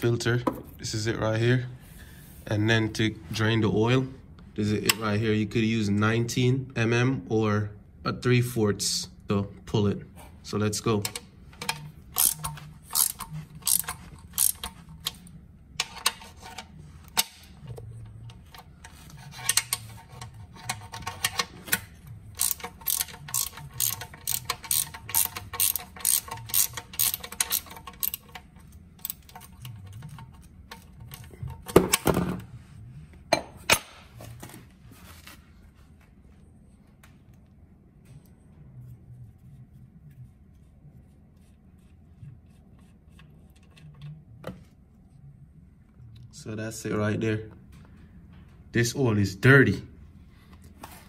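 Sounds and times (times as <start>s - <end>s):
ratchet wrench clicking: 11.1s - 15.2s, 22.4s - 30.2s.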